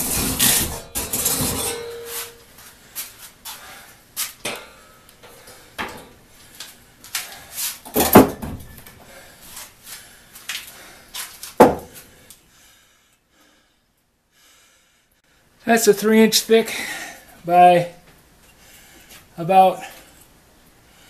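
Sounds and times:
wooden knocks on workbench: 11.6 - 11.9.

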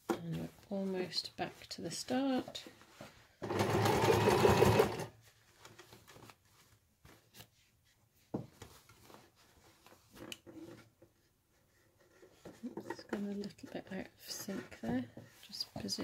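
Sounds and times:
fabric rustling: 0.0 - 16.0
sewing machine stitching: 3.4 - 5.1.

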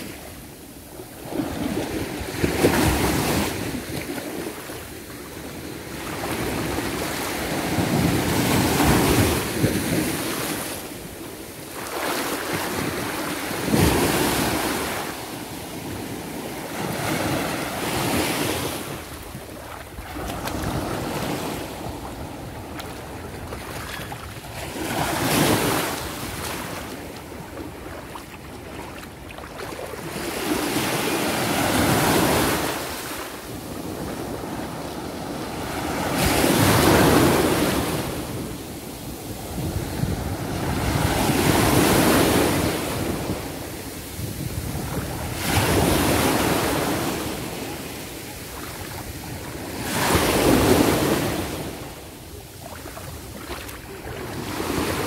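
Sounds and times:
small waves breaking on sand: 0.0 - 55.0.

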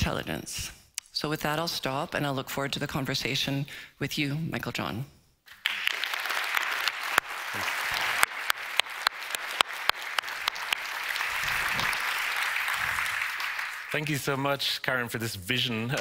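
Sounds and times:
audience applauding: 5.5 - 14.5.

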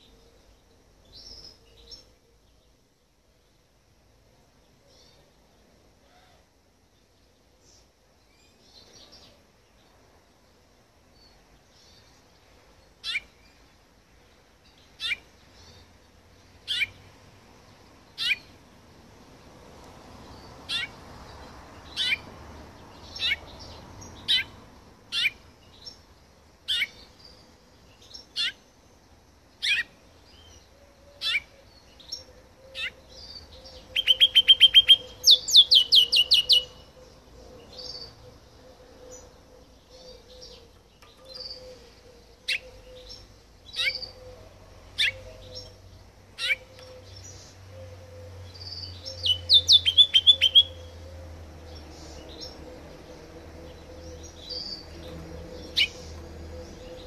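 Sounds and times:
finch chirping: 13.0 - 13.6, 14.6 - 15.9, 16.6 - 17.0, 18.2 - 18.6, 21.8 - 22.3, 22.9 - 28.7, 29.6 - 30.6, 31.2 - 51.1, 51.7 - 57.0
bird trilling: 15.0 - 15.2, 18.2 - 18.5, 33.8 - 37.0, 37.8 - 45.8, 46.4 - 51.0, 53.8 - 57.0.

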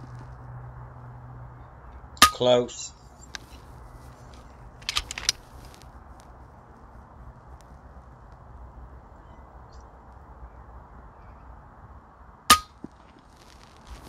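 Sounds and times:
faint low background noise: 0.0 - 14.0
air rifle shot: 12.5 - 12.8.

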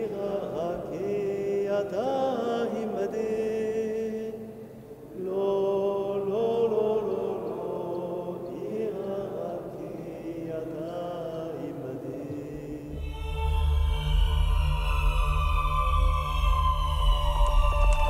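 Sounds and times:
person chanting: 0.0 - 18.0
low ambient music drone: 12.8 - 18.0.

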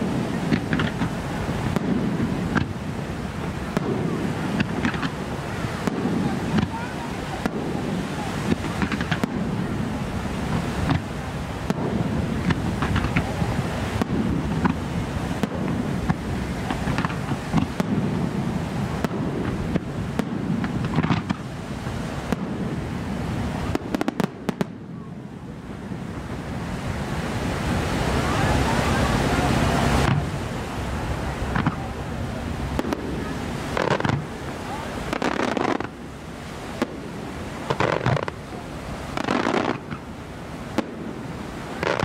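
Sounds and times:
firework shells bursting: 0.0 - 2.8, 3.7 - 5.2, 19.0 - 21.4, 32.7 - 34.3, 35.1 - 36.0, 36.8 - 38.4, 39.1 - 40.1, 41.8 - 42.0.

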